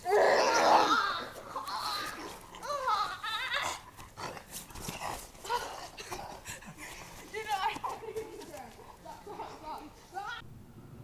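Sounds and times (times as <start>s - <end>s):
people growling and crying out: 0.0s - 3.9s
knocks and scuffs of struggle: 3.9s - 9.0s.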